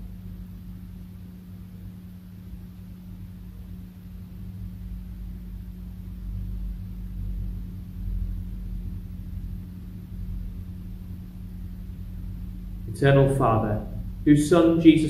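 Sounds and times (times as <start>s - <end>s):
steady low hum: 0.0s - 15.0s
fluctuating low rumble: 6.6s - 15.0s.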